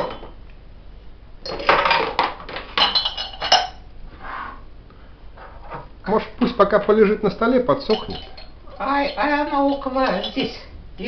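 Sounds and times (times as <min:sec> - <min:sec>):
metal grinder parts clanking: 0:07.8 - 0:10.6.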